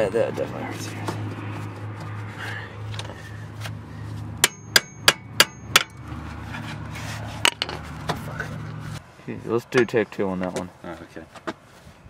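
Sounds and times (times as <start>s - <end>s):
hammer striking metal brake disc: 4.4s - 6.0s.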